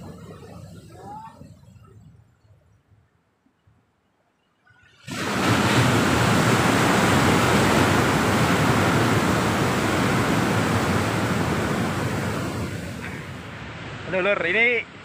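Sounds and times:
sea surf breaking against rocks: 5.0s - 15.0s.

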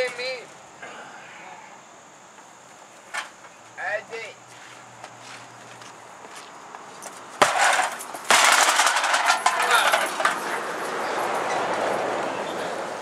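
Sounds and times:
hard objects clattering: 7.4s - 10.6s.

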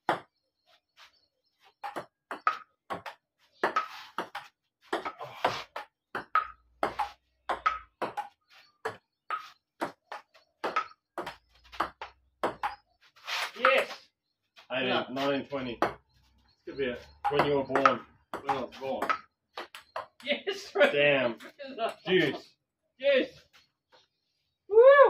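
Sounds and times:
table tennis ball hits: 8.9s - 12.8s.

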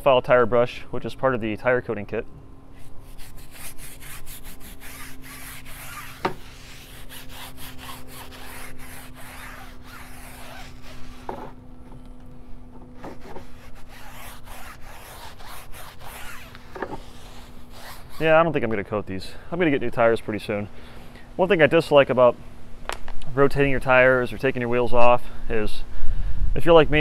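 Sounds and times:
stiff brush scrubbing rubber tire: 2.8s - 11.6s, 13.0s - 18.9s.

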